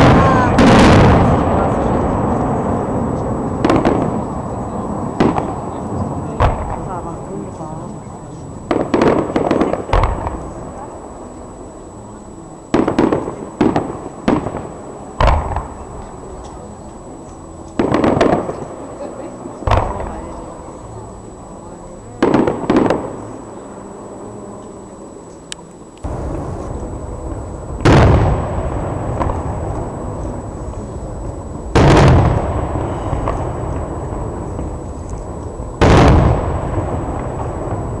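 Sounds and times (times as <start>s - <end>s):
firework bang: 0.0s - 4.5s, 5.1s - 7.1s, 8.6s - 10.9s, 12.7s - 16.0s, 17.8s - 18.8s, 19.6s - 20.3s, 22.2s - 23.2s, 26.0s - 38.0s
steady low rumble: 0.0s - 38.0s.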